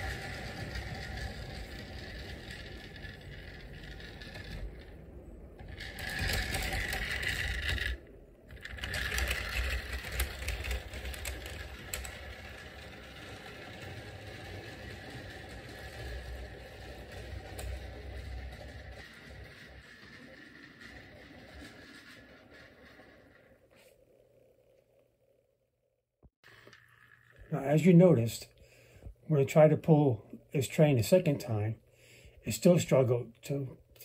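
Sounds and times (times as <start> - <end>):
clockwork toy train motor whirring: 0.0 - 24.0, 26.5 - 28.4.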